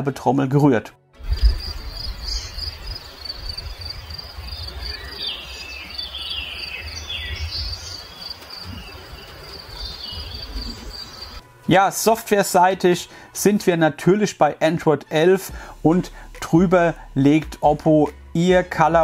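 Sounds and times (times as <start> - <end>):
descending bird chirps: 1.2 - 11.4
high-pitched insect trilling: 1.3 - 6.0.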